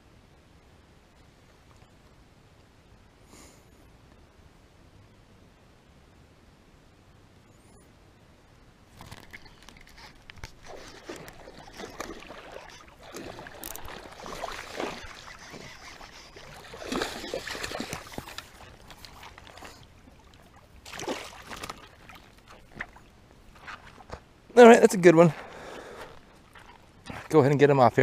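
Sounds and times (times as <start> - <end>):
water splashing from thrashing fish: 9.0 - 23.1.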